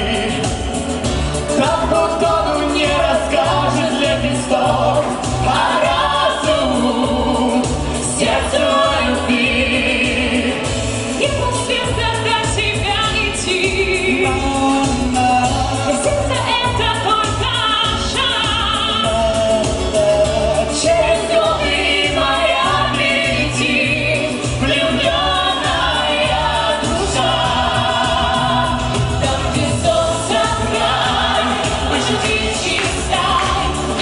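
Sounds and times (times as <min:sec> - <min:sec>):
male singer: 0:00.0 - 0:00.8, 0:01.5 - 0:10.7, 0:13.4 - 0:17.2, 0:18.7 - 0:26.0
pop music with bass line: 0:00.0 - 0:34.0
female singers: 0:01.4 - 0:34.0.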